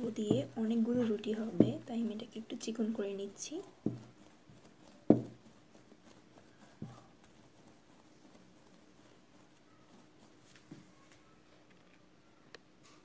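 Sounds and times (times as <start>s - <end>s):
dough thumping on wooden board: 0.0s - 2.1s, 3.7s - 5.7s.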